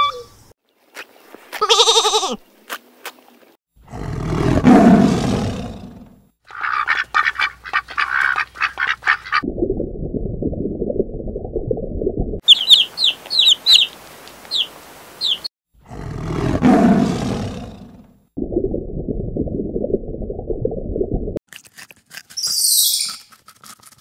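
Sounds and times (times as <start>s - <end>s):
tiger roar: 3.8s - 6.1s, 15.8s - 18.0s
falling bird chirps: 12.4s - 15.5s, 22.4s - 23.3s
muffled underwater rumble: 18.4s - 21.4s.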